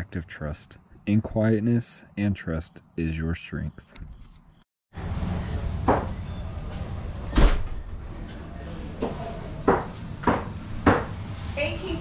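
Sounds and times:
sharp knocks and clatters: 0:09.0 - 0:11.4.

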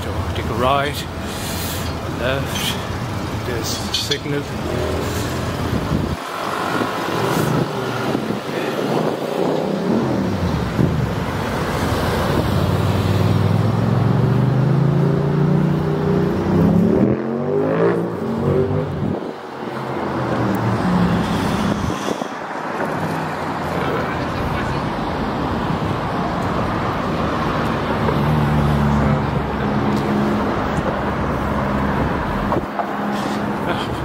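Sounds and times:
road traffic: 0:00.0 - 0:34.0
vehicle engine speeding up: 0:04.7 - 0:22.0.

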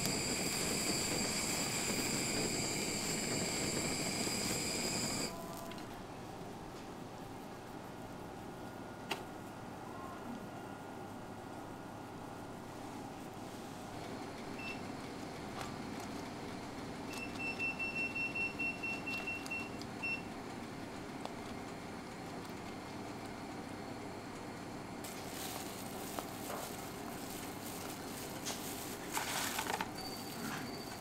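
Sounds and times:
appliance beeping: 0:00.0 - 0:05.6, 0:14.2 - 0:15.0, 0:17.0 - 0:20.4, 0:25.1 - 0:31.0
bright hiss: 0:00.0 - 0:05.7, 0:25.0 - 0:29.2
steady background hum: 0:00.0 - 0:31.0.

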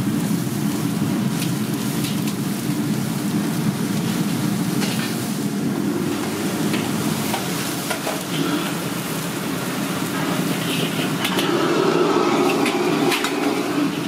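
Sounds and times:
gas burner roaring: 0:00.0 - 0:14.0.

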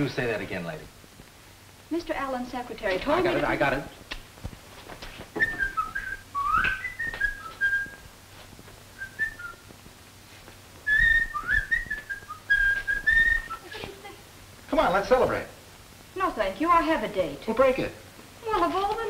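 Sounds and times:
person whistling a tune: 0:05.4 - 0:08.0, 0:09.0 - 0:09.6, 0:10.9 - 0:13.8.

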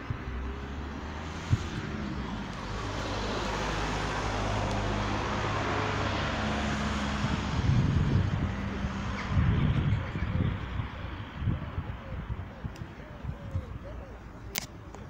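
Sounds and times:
vehicle passing: 0:00.0 - 0:11.6.

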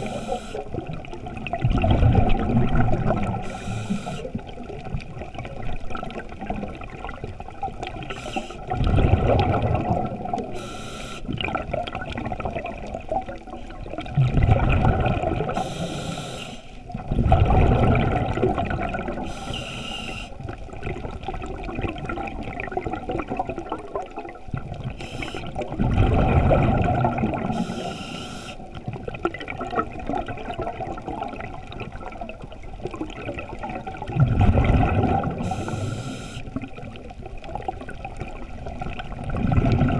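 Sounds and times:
regulator inhalation hisses: 0:00.0 - 0:00.6, 0:03.4 - 0:04.4, 0:08.1 - 0:08.6, 0:10.6 - 0:11.3, 0:15.6 - 0:16.8, 0:19.2 - 0:20.4, 0:25.0 - 0:25.5, 0:27.5 - 0:28.7, 0:35.4 - 0:36.5
exhaled bubbles gurgling: 0:00.0 - 0:39.9.

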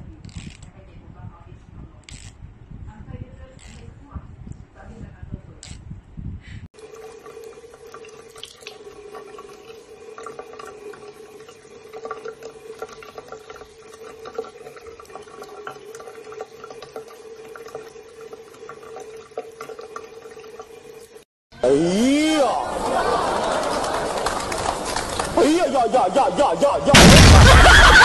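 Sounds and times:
tap water trickling into sink: 0:06.8 - 0:21.2.

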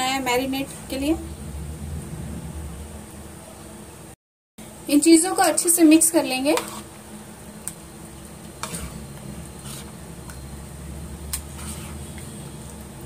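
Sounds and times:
soft wet stirring: 0:06.6 - 0:07.0, 0:07.6 - 0:10.5, 0:11.3 - 0:13.0.

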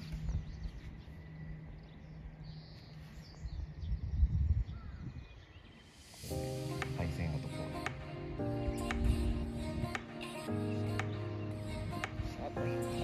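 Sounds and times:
faint bird calls: 0:00.0 - 0:06.0
wind gusting on microphone: 0:00.0 - 0:10.9.

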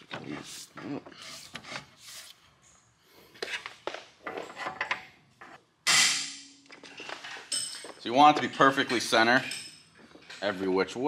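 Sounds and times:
metal clinks and scraping: 0:05.9 - 0:10.5.

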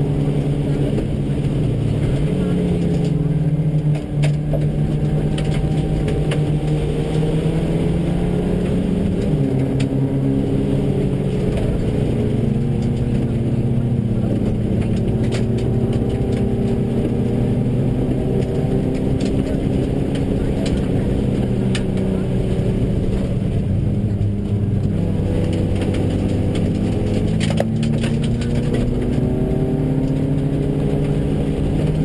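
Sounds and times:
rally car engine running hard: 0:00.0 - 0:32.0
road noise: 0:00.0 - 0:32.0.

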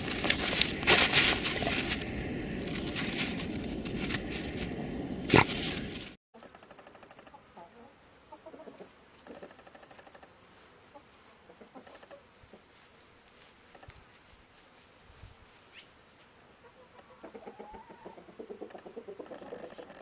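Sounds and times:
chickens clucking softly: 0:06.4 - 0:10.3, 0:10.9 - 0:12.7, 0:16.6 - 0:20.0.

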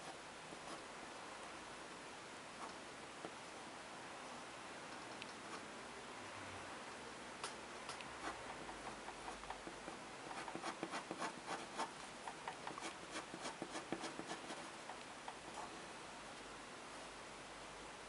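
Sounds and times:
pen scratching on paper: 0:08.2 - 0:14.8.

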